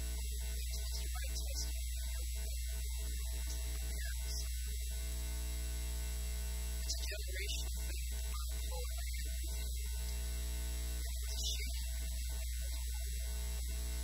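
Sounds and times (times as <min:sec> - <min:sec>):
loud electrical mains hum: 0:00.0 - 0:14.0
garbled voice: 0:00.5 - 0:04.7, 0:06.8 - 0:10.2, 0:11.1 - 0:13.1.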